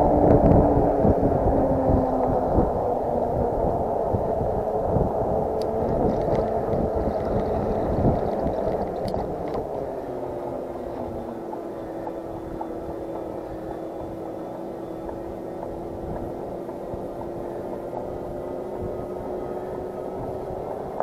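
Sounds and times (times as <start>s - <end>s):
faint steady hum: 0.0s - 21.0s
wind rushing over microphone: 0.0s - 21.0s.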